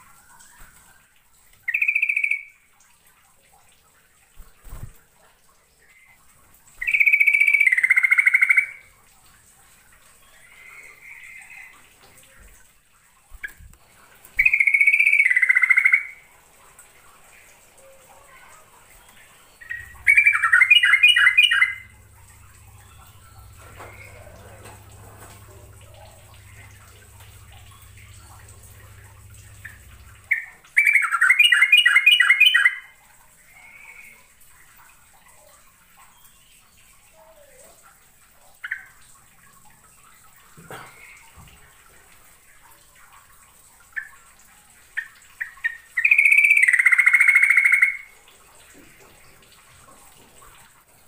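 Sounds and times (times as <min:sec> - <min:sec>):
bulbul singing: 0:01.6 - 0:02.6, 0:06.8 - 0:08.9, 0:14.4 - 0:16.2, 0:17.4 - 0:33.0, 0:45.0 - 0:48.2
bird calls: 0:01.7 - 0:02.5, 0:06.8 - 0:08.9, 0:14.4 - 0:16.2, 0:17.4 - 0:33.0, 0:45.0 - 0:48.2.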